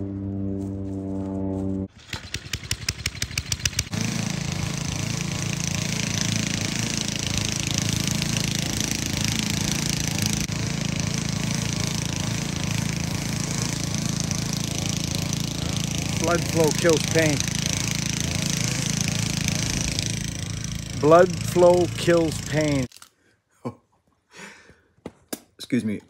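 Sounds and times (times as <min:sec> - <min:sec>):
humming tone: 0:00.0 - 0:01.9
lawn mower engine starting: 0:01.9 - 0:22.9.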